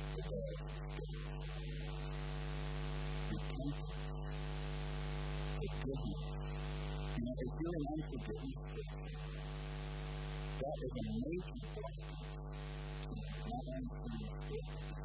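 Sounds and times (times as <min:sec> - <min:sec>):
faint murmured voice: 0:00.0 - 0:02.1, 0:03.3 - 0:04.4
electrical mains hum: 0:00.0 - 0:15.0.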